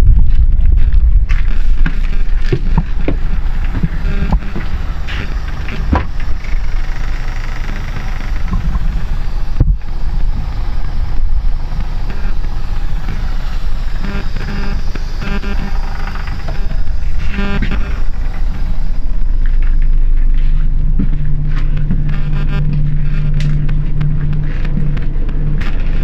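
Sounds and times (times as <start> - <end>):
sharp knocks and clicks: 1.8 - 9.9
bus diesel engine idling: 2.4 - 22.0.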